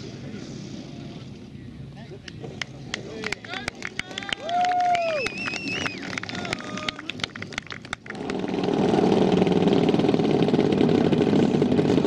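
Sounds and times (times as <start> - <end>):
model plane engine idling: 8.0 - 12.0.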